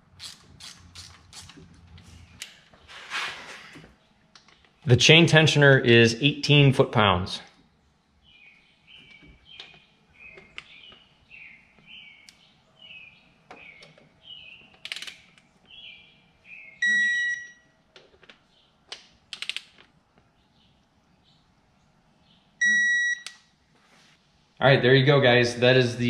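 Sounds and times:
sharp metal clicks: 14.7s - 15.5s, 18.9s - 19.9s
wrench beeping: 16.8s - 17.6s, 22.6s - 23.4s.

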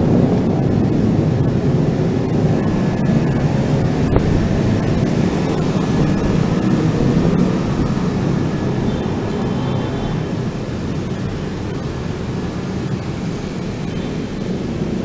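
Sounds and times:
bicycle rolling noise: 0.0s - 15.0s
wind rumble on microphone: 0.0s - 15.0s.

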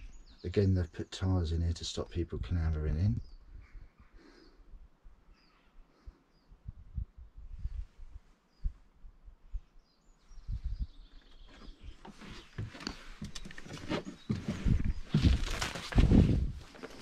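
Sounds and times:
faint bird chirps: 0.0s - 1.2s, 3.1s - 15.5s
footsteps outdoors: 11.0s - 17.0s
rustling: 11.5s - 17.0s.

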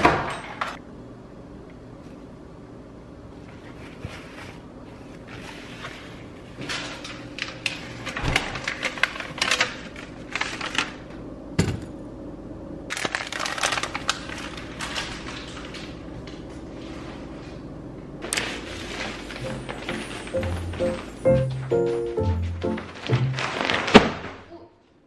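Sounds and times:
paper and plastic rustling: 3.5s - 11.1s, 12.9s - 17.6s, 18.2s - 24.5s.

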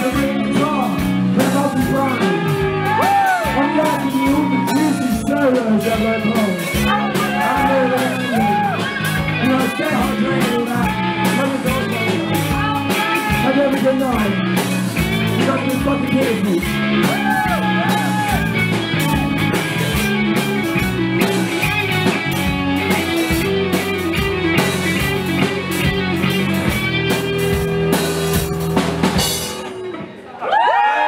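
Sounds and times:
steady drum beat: 0.0s - 29.9s
bass guitar: 0.0s - 30.3s
electric guitars: 0.0s - 30.3s.

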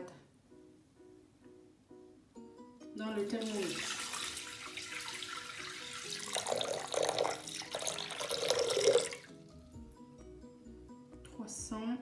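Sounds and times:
water pouring into metal bowl: 3.2s - 9.4s.

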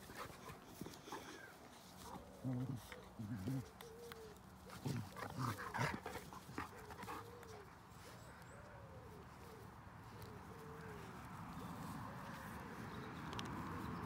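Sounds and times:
puppies play-fighting: 0.0s - 8.3s.

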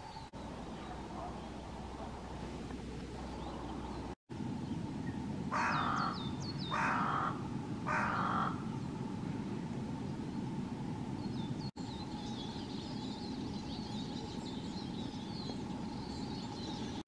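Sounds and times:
low rumble: 0.0s - 17.0s
crow cawing: 5.5s - 8.6s.

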